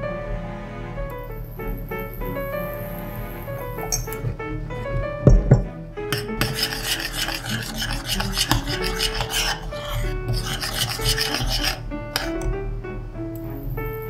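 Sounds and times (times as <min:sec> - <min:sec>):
metal spoon scraping saucepan: 0:03.8 - 0:04.4, 0:05.4 - 0:12.5
sharp knocks: 0:04.1 - 0:06.3.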